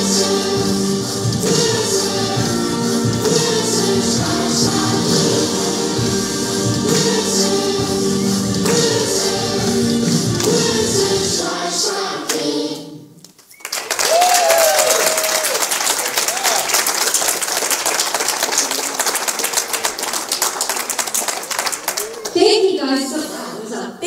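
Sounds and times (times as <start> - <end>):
people singing: 0.0 - 13.2
congregation applauding: 13.3 - 22.4
short cheers: 13.6 - 16.9.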